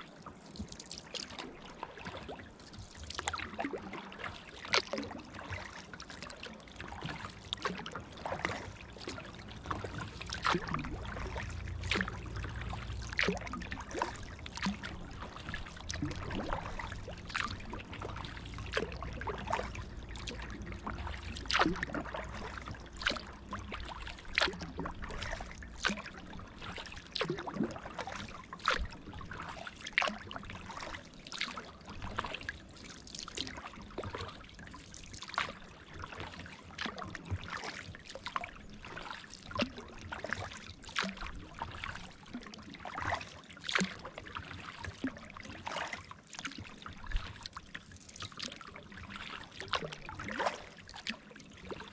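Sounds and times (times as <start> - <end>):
paddle blades splashing: 0.0 - 51.9
water dripping off paddle: 0.2 - 51.9.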